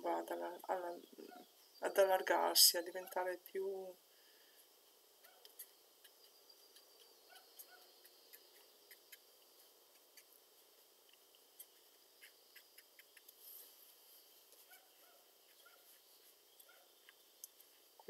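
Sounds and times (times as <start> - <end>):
faint room hiss: 0.0 - 18.0
small soft ticks: 5.2 - 13.4, 16.6 - 17.8.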